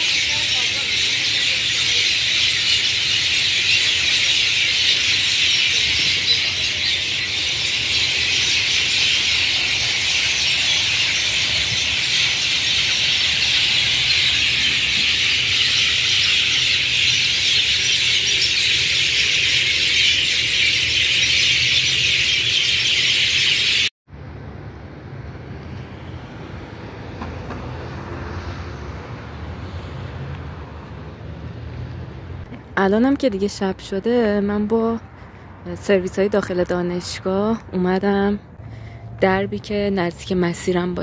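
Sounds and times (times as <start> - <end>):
flock of birds chattering: 0.0 - 23.9.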